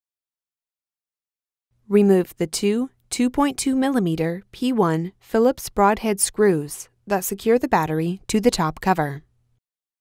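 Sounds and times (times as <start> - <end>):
narrator speaking: 1.9 - 9.3.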